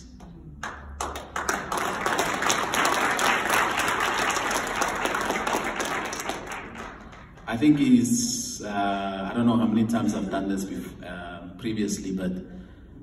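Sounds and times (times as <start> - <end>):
audience applauding: 0.6 - 7.5.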